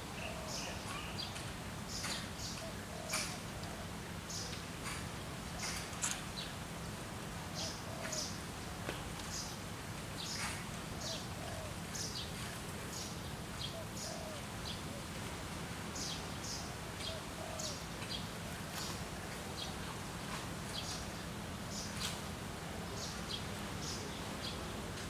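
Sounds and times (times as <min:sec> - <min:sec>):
birds chirping: 0:00.1 - 0:06.6.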